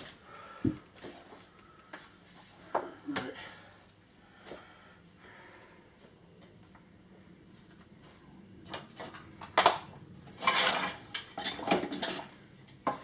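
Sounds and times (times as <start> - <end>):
hard objects clattering and knocking: 8.7 - 13.0.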